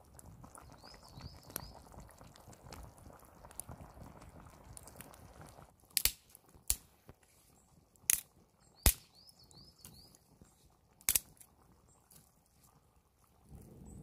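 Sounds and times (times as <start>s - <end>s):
small bird chirping: 0.6s - 2.1s, 8.6s - 10.7s.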